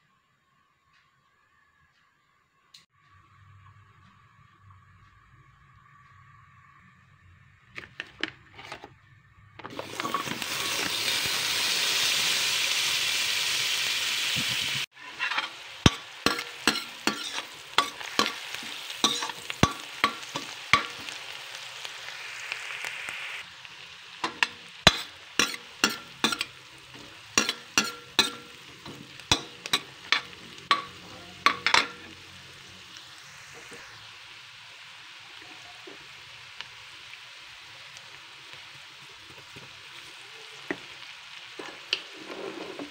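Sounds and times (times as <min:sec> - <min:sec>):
garlic and onion sizzling in pan: 0:09.6 - 0:42.9
utensil stirring against pan: 0:14.9 - 0:21.4, 0:24.2 - 0:32.2.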